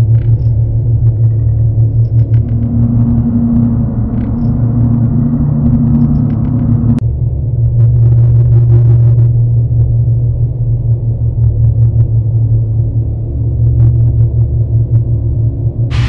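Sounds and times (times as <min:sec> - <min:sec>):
low drone: 0:00.0 - 0:08.1, 0:14.6 - 0:16.0
faint tones: 0:01.2 - 0:07.0.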